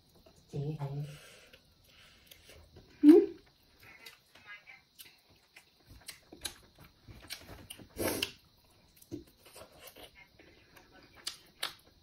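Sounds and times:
chewing mouth clicks and smacks: 5.0 - 9.1.

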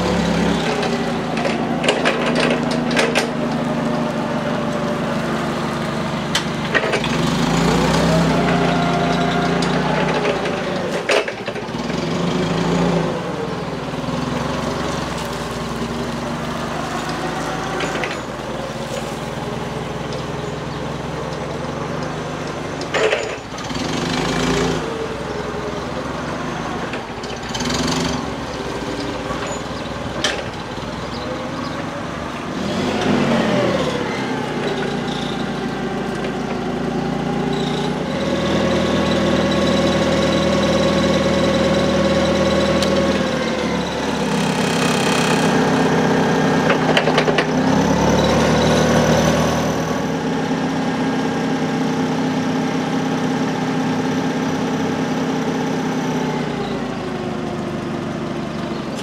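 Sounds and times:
forklift engine revving: 0.0 - 59.0.

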